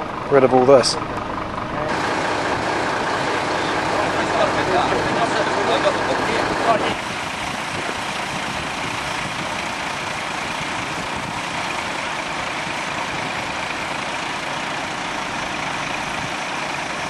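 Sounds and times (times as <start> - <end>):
fire engines running: 0.0 - 17.0.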